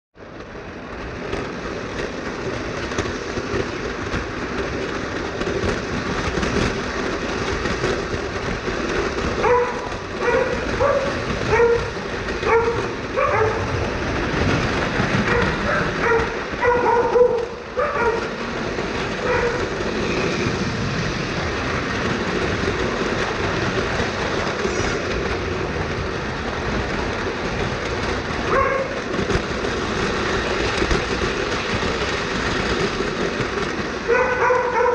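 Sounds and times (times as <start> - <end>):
model train rumbling on track: 0.2 - 34.9
dog barking: 9.4 - 13.7, 15.2 - 18.3, 19.2 - 19.7, 28.5 - 29.0, 34.1 - 34.9.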